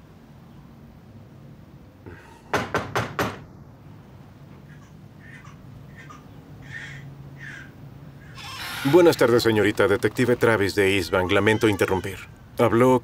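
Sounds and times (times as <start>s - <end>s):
knocks on front door: 2.5s - 3.5s.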